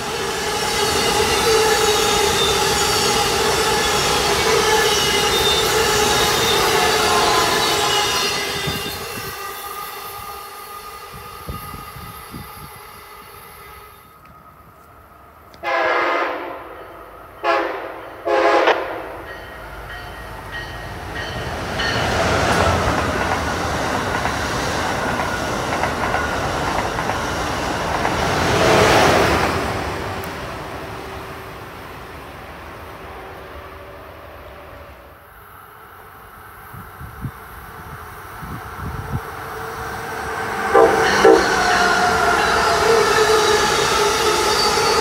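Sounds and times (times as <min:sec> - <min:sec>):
passenger train rolling: 0:00.0 - 0:45.0
train passing rumble: 0:00.0 - 0:45.0
train horn blasts: 0:00.1 - 0:10.4, 0:15.6 - 0:19.2, 0:40.3 - 0:45.0.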